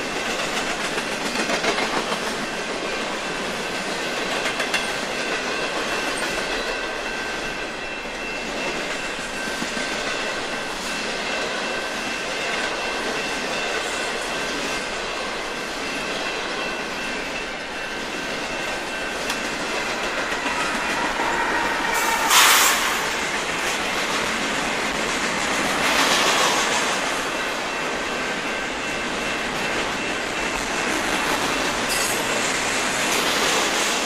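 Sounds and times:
freight train passing: 0.0 - 34.0
wheels running on rails: 0.0 - 34.0
faint high squealing: 20.3 - 23.3.

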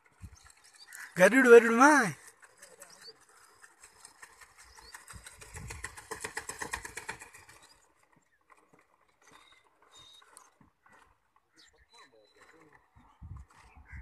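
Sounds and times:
rope rattling over wooden pulley: 1.6 - 11.4.

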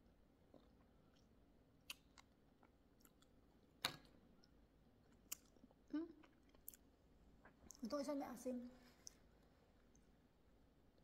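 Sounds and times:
mouth chewing with clicks and smacks: 0.5 - 7.8.

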